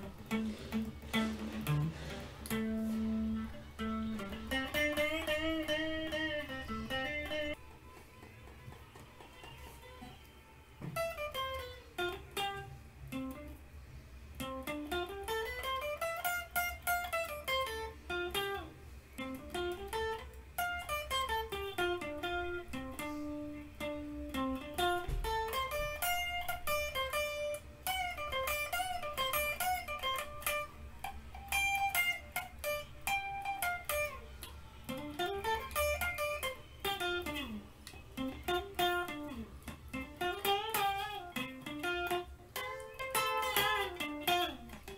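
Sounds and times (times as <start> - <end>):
electric guitar solo runs: 19.2 - 44.9.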